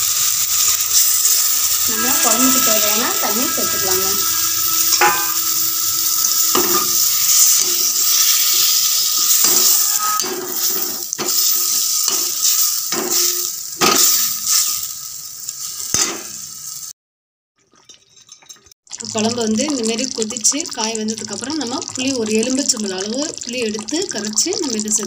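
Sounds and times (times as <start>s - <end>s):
oil sizzling in a metal pan: 0.0s - 17.0s, 18.1s - 25.0s
metal ladle scraping a pan: 0.2s - 14.8s.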